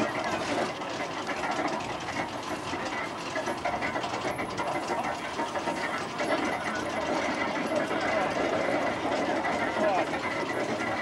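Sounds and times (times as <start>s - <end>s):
threshing machine rattling clatter: 0.0s - 11.0s.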